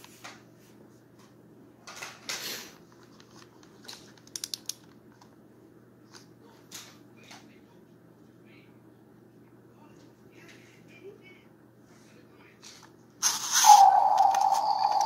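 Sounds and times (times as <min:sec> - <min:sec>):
toy handling rustle: 0:13.2 - 0:15.0.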